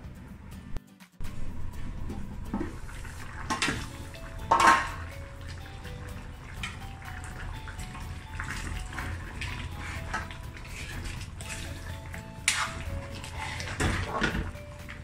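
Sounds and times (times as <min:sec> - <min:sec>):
metal ladle stirring stew: 0:02.8 - 0:15.0
metal pan lid clattering: 0:04.4 - 0:05.0.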